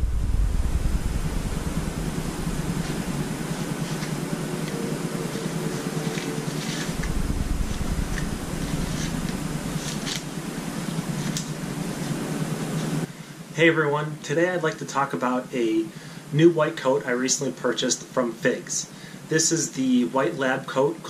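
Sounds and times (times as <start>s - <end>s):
droning background hum: 0.0s - 21.0s.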